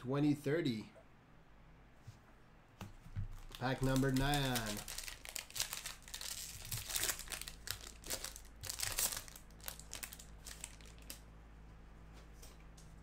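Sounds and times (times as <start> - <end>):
wrapper crinkling and tearing: 3.3 - 11.2.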